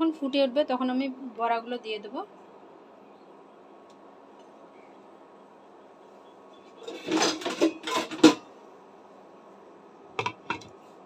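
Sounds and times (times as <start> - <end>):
glass lid rattling: 6.8 - 8.5, 10.2 - 10.7
lid clinking on metal pan: 6.8 - 8.5, 10.2 - 10.7.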